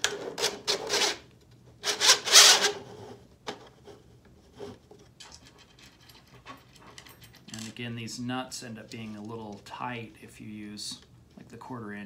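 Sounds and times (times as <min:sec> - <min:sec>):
faint handling noises: 0:02.9 - 0:12.0.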